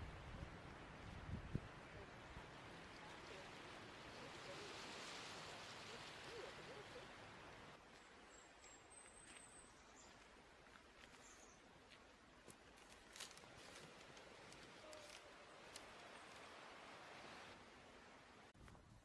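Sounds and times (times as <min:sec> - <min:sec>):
water washing on rocky shore: 0:02.2 - 0:07.7.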